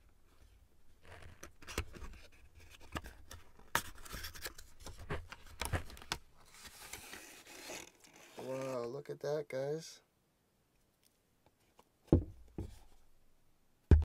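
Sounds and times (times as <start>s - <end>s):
box sliding rustle: 3.8s - 8.8s.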